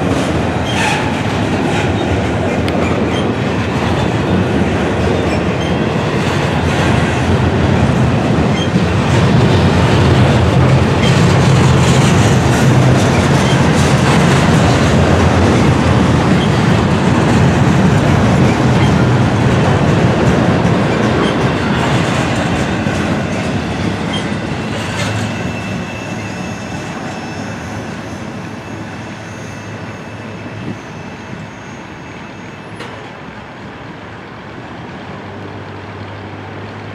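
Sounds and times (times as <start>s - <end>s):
train wheels rumbling on rails: 0.0s - 36.9s
faint wheel squeal: 24.1s - 33.1s.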